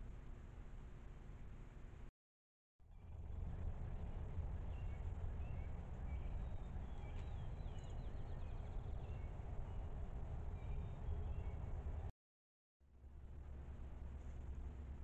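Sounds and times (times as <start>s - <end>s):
steady low rumble: 2.9s - 12.1s
small birds chirping: 4.6s - 12.1s.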